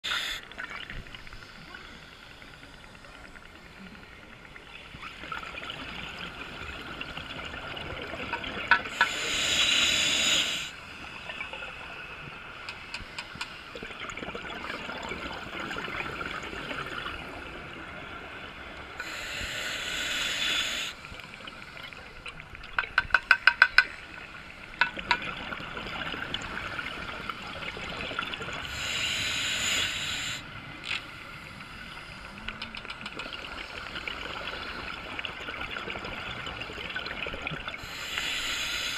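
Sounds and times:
regulator breathing hiss: 0.0 - 0.5, 8.9 - 10.8, 19.0 - 21.9, 28.6 - 30.5, 37.8 - 38.9.

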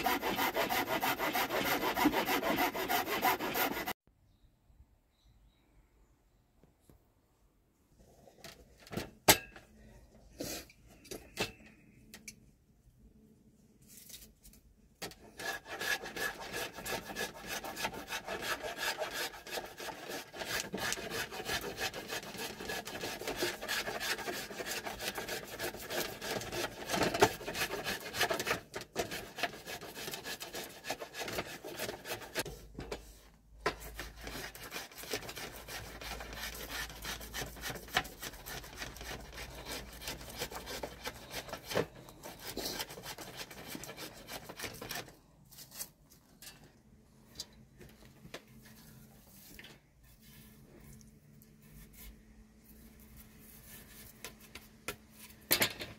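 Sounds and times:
blade scraping wooden stick: 0.0 - 4.0, 15.0 - 32.6, 33.7 - 45.9.

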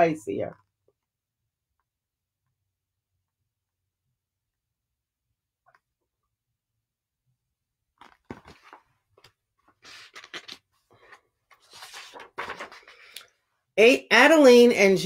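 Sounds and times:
paper pages turning: 8.0 - 13.3.

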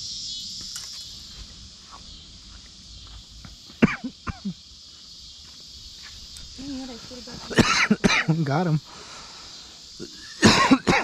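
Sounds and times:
high insect chorus: 0.0 - 11.0
person coughing: 3.8 - 4.6, 7.5 - 8.4, 10.0 - 11.0.

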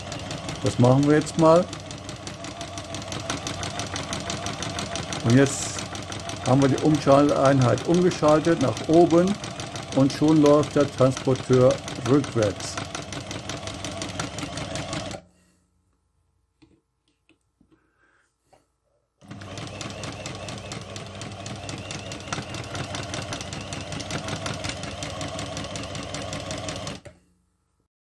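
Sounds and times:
sewing machine running fast: 0.0 - 15.2, 19.2 - 27.1.

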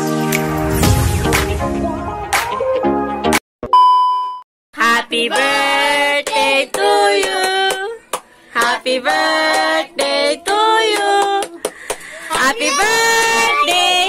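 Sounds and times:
boy singing: 4.8 - 8.0, 8.6 - 14.0
woman singing along: 4.8 - 8.0, 8.6 - 11.6, 12.2 - 14.0.

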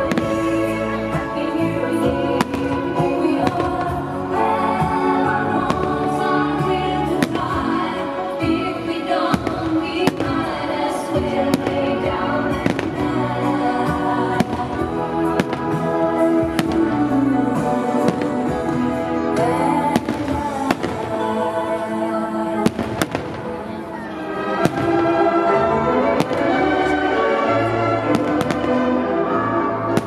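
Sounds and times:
loud festive music: 0.0 - 30.0
fireworks bangs: 22.6 - 23.6, 24.5 - 26.9, 28.0 - 29.0.

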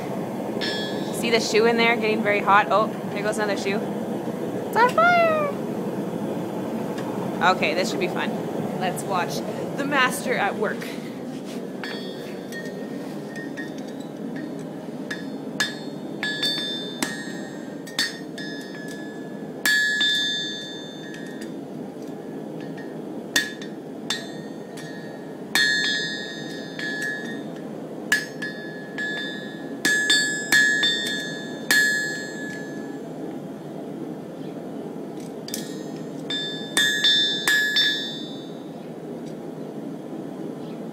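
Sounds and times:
steady low rush: 0.0 - 11.8
hammer striking horseshoe on anvil: 28.1 - 32.6, 35.5 - 38.4.

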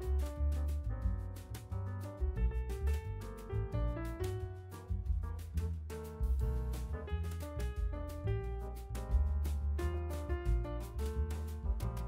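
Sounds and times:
bass line: 0.0 - 12.0
steady drum beat: 4.8 - 12.0.

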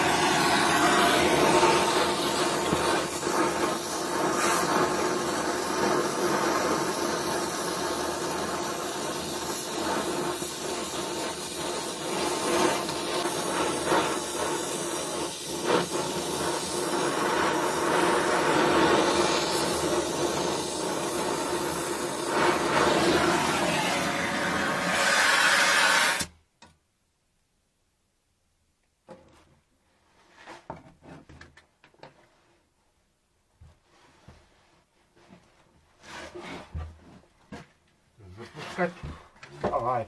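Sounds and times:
welding torch flame hissing: 0.0 - 26.4.

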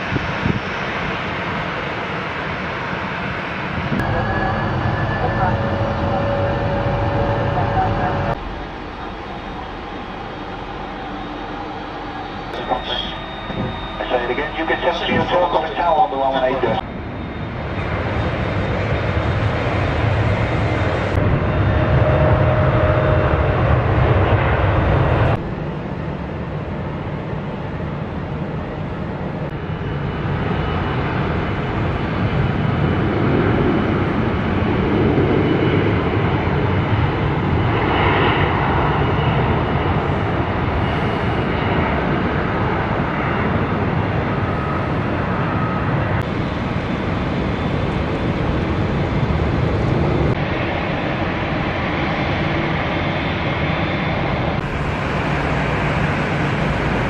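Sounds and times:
distant aircraft noise: 0.0 - 57.0.

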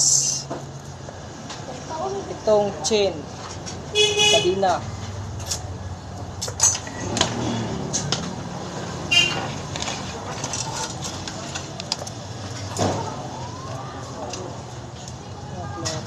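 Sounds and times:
street traffic hum: 0.0 - 16.0.

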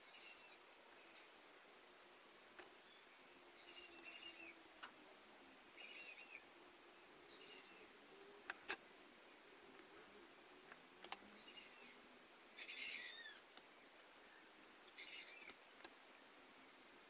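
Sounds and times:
bird chirping: 0.0 - 1.5, 2.8 - 4.6, 5.7 - 6.5, 7.2 - 8.6, 9.3 - 13.5, 14.2 - 15.6
low room noise: 0.0 - 17.0.

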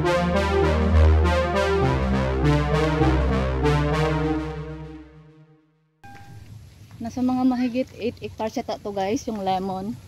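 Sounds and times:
deep bass line with beat: 0.0 - 5.3
synthesizer keyboard tune: 0.0 - 6.5.

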